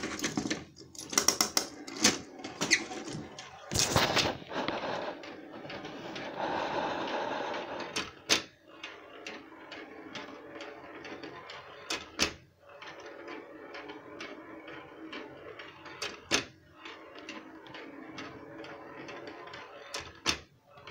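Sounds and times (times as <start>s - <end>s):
metal ball rolling on track: 7.3s - 20.9s.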